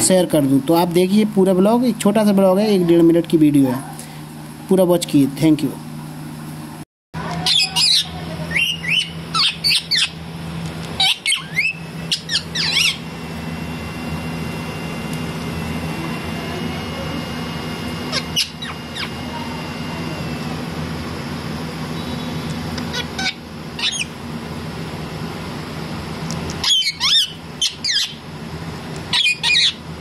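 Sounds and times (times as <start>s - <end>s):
steady low hum: 0.0s - 30.0s
parakeet squawking: 7.4s - 10.2s, 11.0s - 13.1s, 18.1s - 19.2s, 22.9s - 24.2s, 26.6s - 28.2s, 29.1s - 29.8s.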